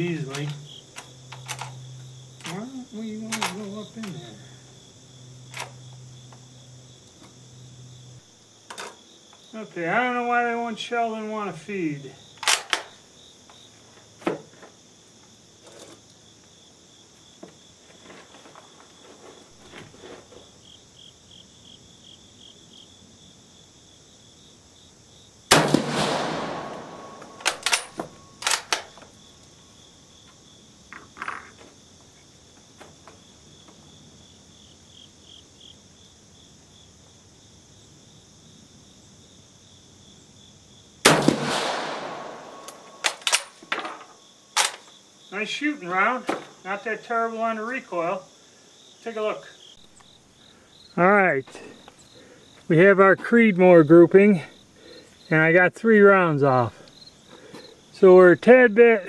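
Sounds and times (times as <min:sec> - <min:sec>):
insects chirping: 0:00.0 - 0:59.0
rifle bolt metallic clicks: 0:12.4 - 0:12.9, 0:25.5 - 0:29.0, 0:41.6 - 0:43.6
rifle shots ringing out: 0:25.5 - 0:28.8, 0:41.0 - 0:43.5.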